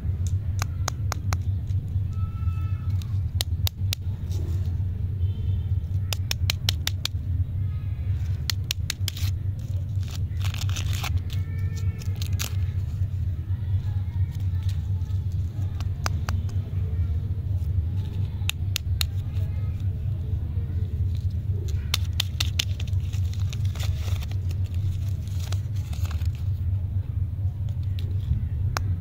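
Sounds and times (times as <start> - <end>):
steady low rumble: 0.0 - 29.0
paper wrappers crackling: 8.1 - 16.7, 17.5 - 26.8.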